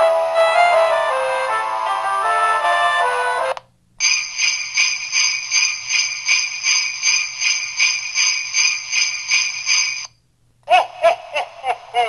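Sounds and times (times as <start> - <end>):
sleigh bells jingling: 4.0 - 10.1.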